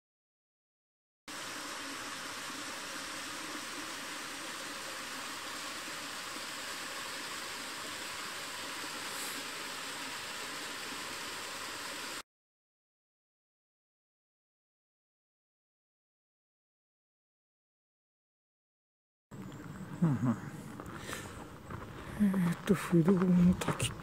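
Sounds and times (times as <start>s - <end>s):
waterfall rushing onto stones: 1.3s - 12.2s.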